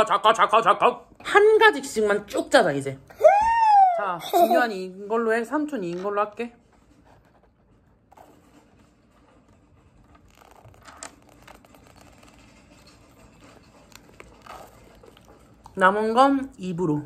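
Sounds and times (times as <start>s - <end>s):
soft plastic rustles: 5.6s - 16.2s.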